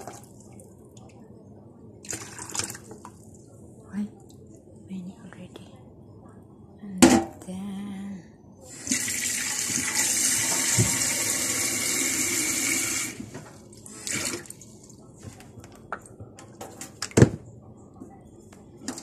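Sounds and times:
tap water running into metal sink: 8.8s - 13.2s.

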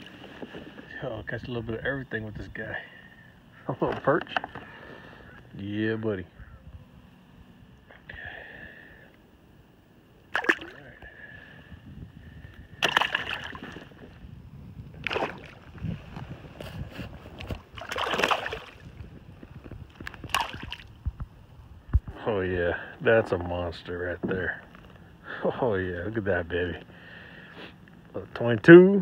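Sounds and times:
low water noise: 0.0s - 29.0s
water splashing beside kayak: 10.3s - 11.0s, 12.8s - 14.2s, 14.9s - 19.2s, 19.9s - 21.1s.

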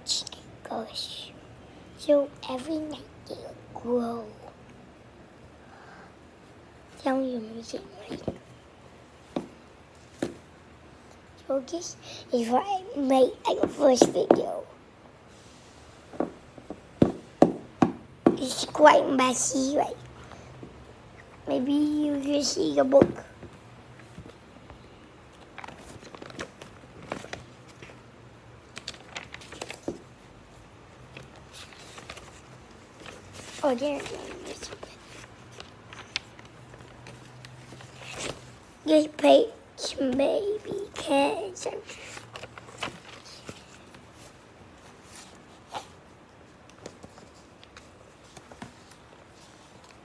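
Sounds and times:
paper rustling and crinkling: 25.3s - 30.2s, 31.0s - 38.6s, 41.2s - 50.0s.

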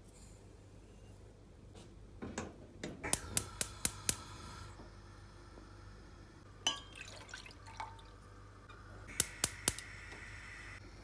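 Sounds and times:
low steady hum: 0.0s - 11.0s
gas hob spark igniter clicking: 3.0s - 4.4s, 9.1s - 10.0s.

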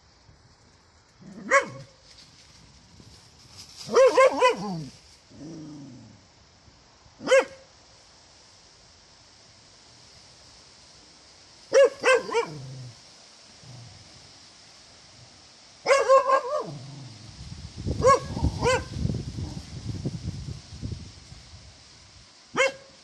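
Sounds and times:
dog barking: 1.4s - 1.9s, 3.9s - 4.9s, 7.2s - 7.6s, 11.7s - 12.6s, 15.8s - 16.8s, 18.0s - 18.9s, 22.6s - 23.0s.

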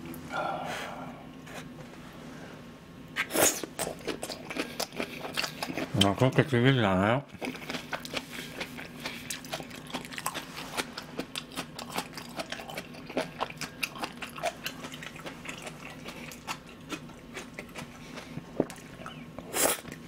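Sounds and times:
person chewing food: 3.2s - 6.2s, 7.3s - 20.0s.

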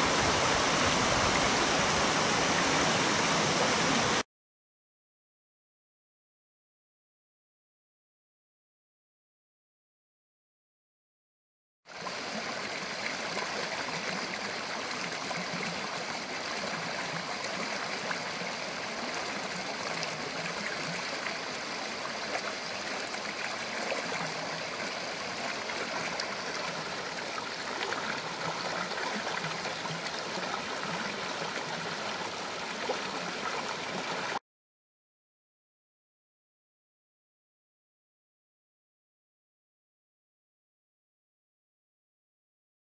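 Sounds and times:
stream rushing over rocks: 0.0s - 4.2s, 12.0s - 34.4s.

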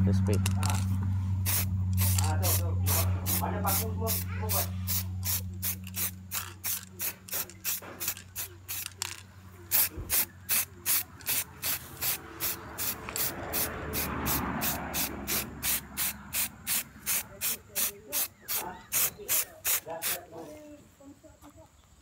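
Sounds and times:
spray can ball rattling: 0.4s - 20.2s.

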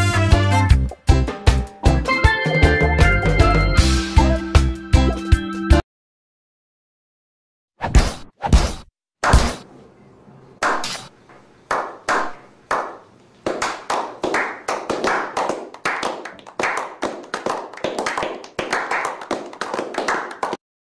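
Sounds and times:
people clapping: 11.7s - 20.6s.

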